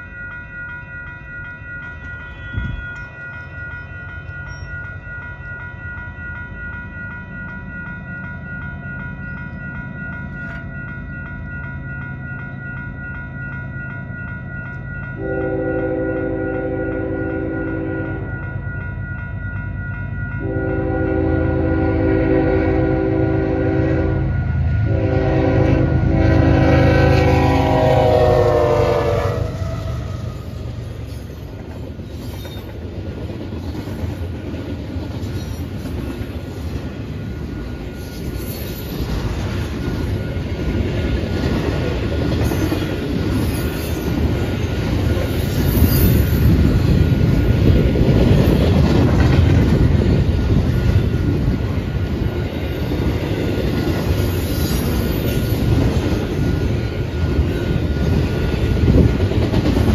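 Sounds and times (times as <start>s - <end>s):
train cars rumbling and clattering: 0.0s - 59.9s
train horn blasts: 15.2s - 18.4s, 20.4s - 30.8s.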